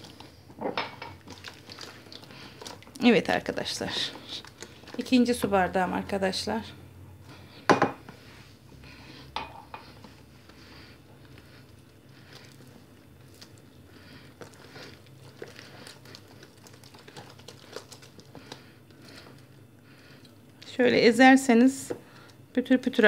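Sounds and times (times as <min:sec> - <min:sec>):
hand squishing dough: 0:01.2 - 0:06.4, 0:09.9 - 0:19.7.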